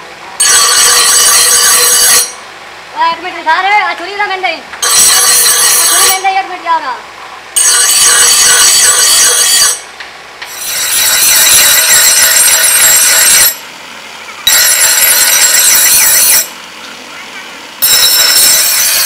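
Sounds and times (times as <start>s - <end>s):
bench grinder screeching on steel: 7.6s - 9.8s, 10.5s - 13.6s, 14.5s - 16.5s, 17.8s - 19.0s.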